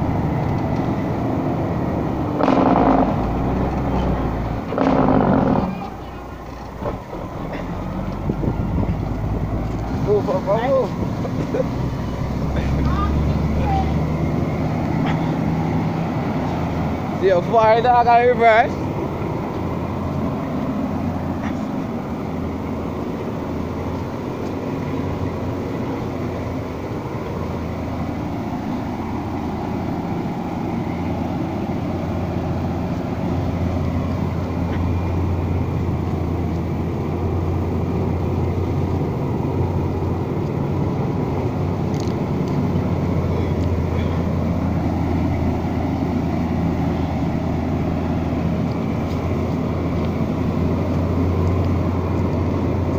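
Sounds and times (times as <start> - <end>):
truck diesel engine drone: 0.0 - 52.9.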